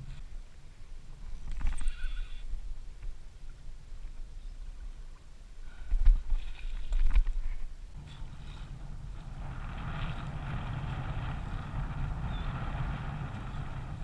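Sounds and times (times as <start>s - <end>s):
water rushing along kayak hull: 3.5s - 14.0s
wind buffeting microphone: 6.0s - 14.0s.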